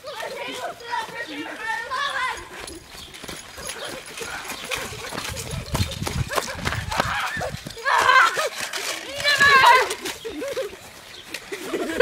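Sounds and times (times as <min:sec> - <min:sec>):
child shouting loudly: 0:00.0 - 0:02.5, 0:07.0 - 0:08.4, 0:09.0 - 0:10.0
running footsteps on grass: 0:00.0 - 0:12.0.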